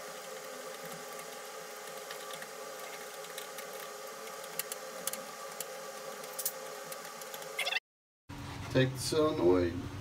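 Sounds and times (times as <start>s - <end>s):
steady mechanical hum: 0.0s - 7.7s, 8.3s - 10.0s.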